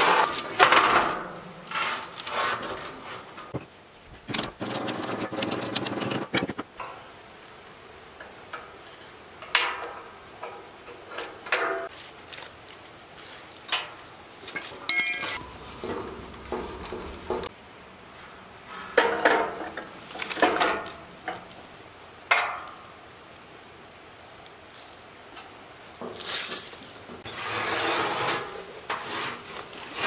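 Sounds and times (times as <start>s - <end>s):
ringing metal clank: 14.6s - 16.0s.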